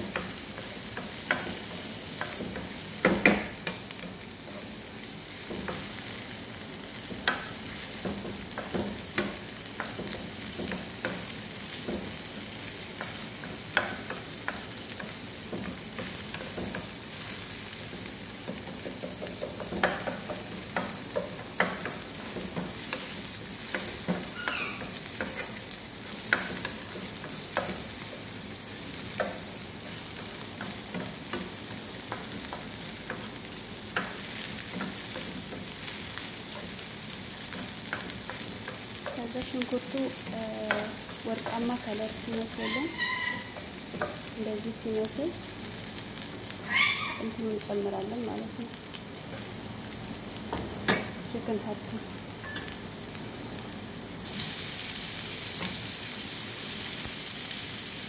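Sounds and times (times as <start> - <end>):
onions sizzling in oil: 0.0 - 58.0
wooden spoon scraping a pan: 29.0 - 44.9.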